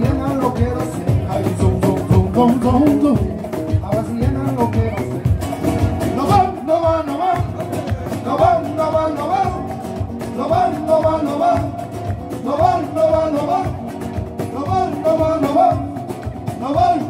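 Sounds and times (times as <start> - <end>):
cajon drum: 0.0 - 17.0
guitars strummed quickly: 0.0 - 17.0.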